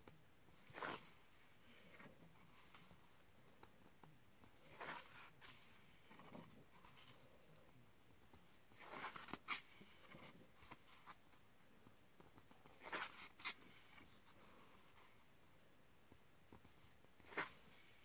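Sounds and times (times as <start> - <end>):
paper pages turning: 0.6 - 2.9, 8.8 - 11.2, 12.6 - 14.2, 17.2 - 18.0.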